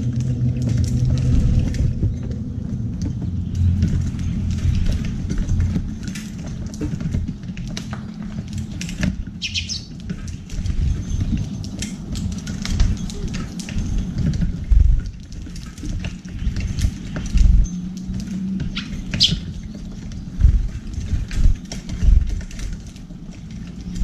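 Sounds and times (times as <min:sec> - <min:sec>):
birds chirping: 0:07.2 - 0:14.4, 0:16.2 - 0:21.3
beaks pecking seeds on metal tray: 0:07.3 - 0:14.2, 0:16.1 - 0:20.9
wing flutters: 0:08.4 - 0:15.0, 0:16.0 - 0:22.8.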